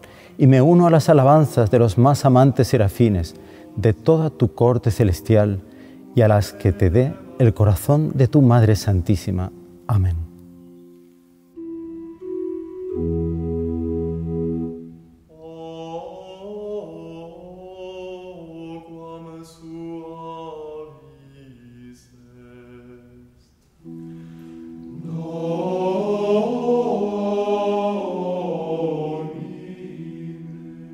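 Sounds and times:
voices singing sacred chant: 0.4 - 8.5, 15.3 - 23.5, 24.8 - 30.9
held chords: 2.8 - 15.6, 23.8 - 30.9.

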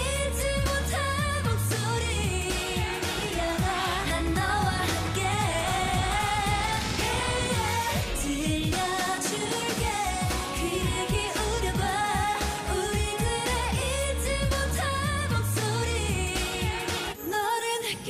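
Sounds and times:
dance-pop backing track: 0.0 - 18.0
female voices singing: 0.0 - 18.0.

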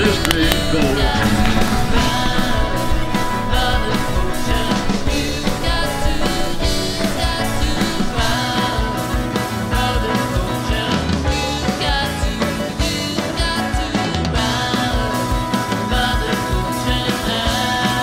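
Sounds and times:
song with steady beat: 0.0 - 13.8.

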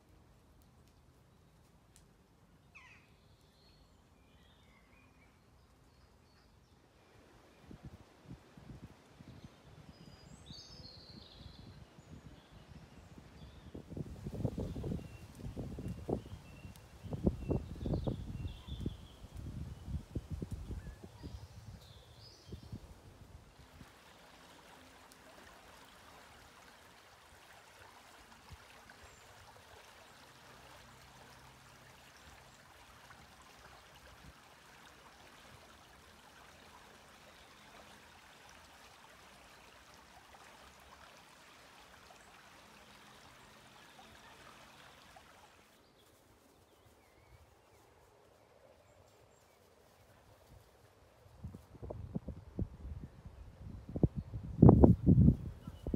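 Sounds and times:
quiet outdoor ambience: 0.0 - 55.9
stream running over gravel: 13.4 - 46.0.

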